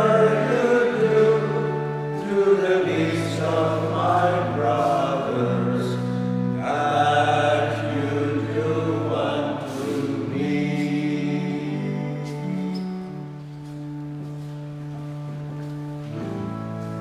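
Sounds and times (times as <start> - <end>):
men singing a hymn: 0.0 - 13.2
held instrumental chords: 0.0 - 17.0.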